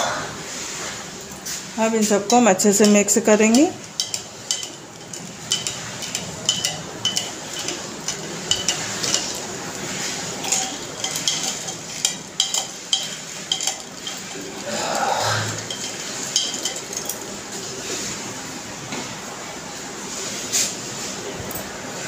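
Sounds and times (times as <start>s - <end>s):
spoon clinking against glass: 2.3s - 14.7s, 15.5s - 17.3s.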